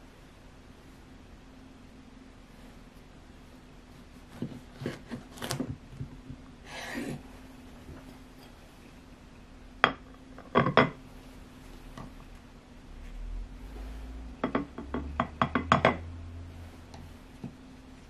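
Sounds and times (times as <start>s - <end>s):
bread rustling: 2.5s - 9.0s
ceramic plate set on tiles: 9.8s - 11.0s, 14.4s - 16.0s.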